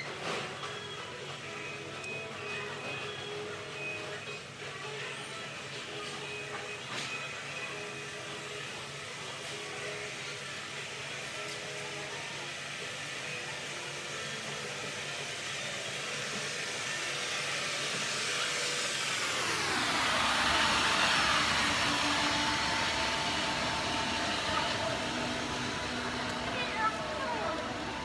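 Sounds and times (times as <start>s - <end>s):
floor scrubber whirring hum: 0.0s - 28.0s.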